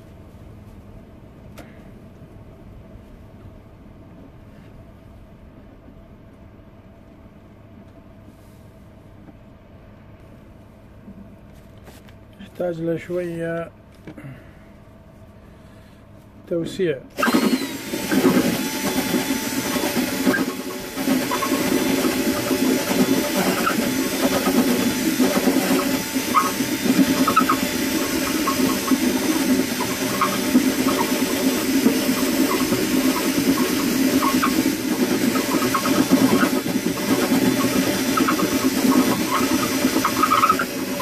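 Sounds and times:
cordless drill drilling wood: 17.2 - 41.0
drill bit ticking: 17.2 - 41.0.

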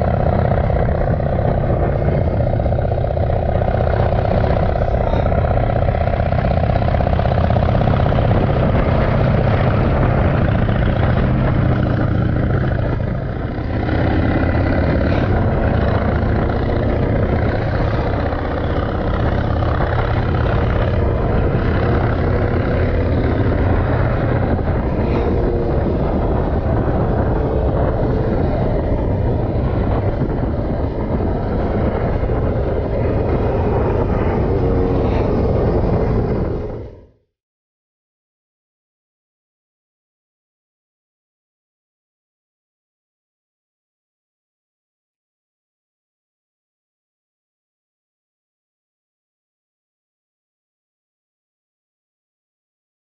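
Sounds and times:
motorcycle engine running: 0.0 - 37.0
road and wind noise: 0.0 - 37.3.

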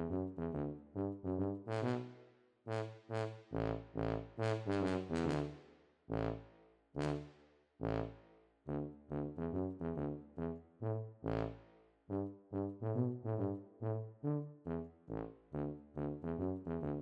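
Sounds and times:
bouncy brass tune: 0.0 - 6.4, 7.0 - 17.0.

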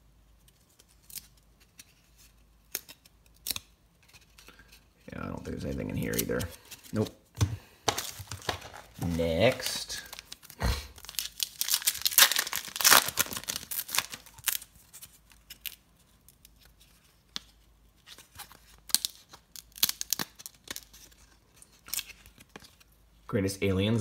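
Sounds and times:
cards clicking and cracking apart: 0.4 - 4.8, 7.9 - 22.8
wrapper tearing and crinkling: 7.9 - 16.8, 18.2 - 22.9.

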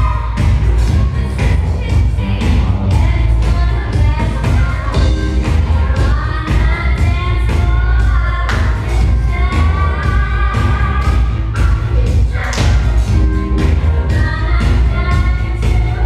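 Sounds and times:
dance music with singing: 0.0 - 16.0.

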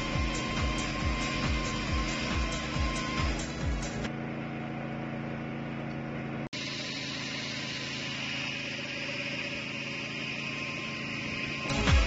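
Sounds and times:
hydraulic chainsaw drone: 0.0 - 4.1, 6.6 - 12.0.

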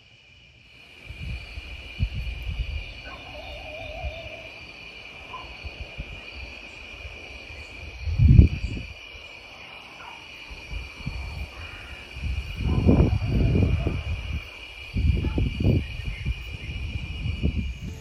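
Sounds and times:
night insects chorus: 0.0 - 18.0
dog howling: 3.0 - 4.6.

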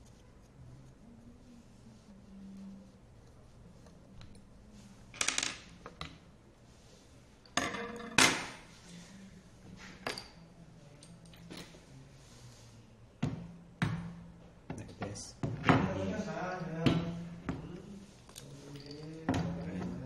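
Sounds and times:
metal parts clinking on table: 18.3 - 19.4.

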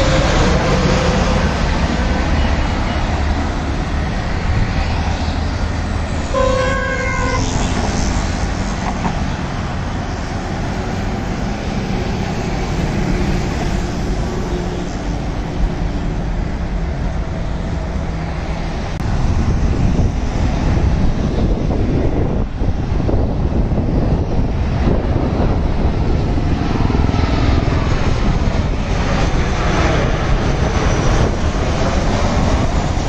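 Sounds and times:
jet airliner roar: 0.0 - 33.0
street traffic: 0.0 - 33.0
vehicle horn honking: 6.3 - 7.8.

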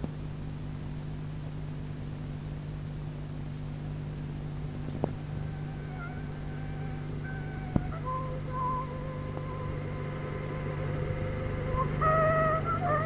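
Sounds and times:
soundtrack hum and hiss: 0.0 - 13.0
faint high-pitched tune: 4.8 - 13.0.

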